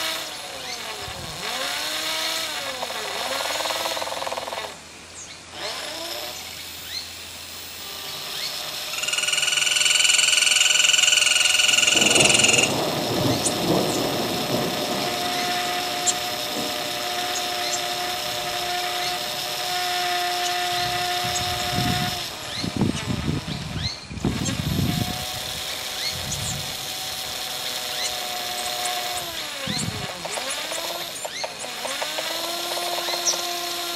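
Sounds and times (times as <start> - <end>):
high drill-like whine: 0.0 - 33.9
rough noisy texture with clicks: 8.2 - 33.9.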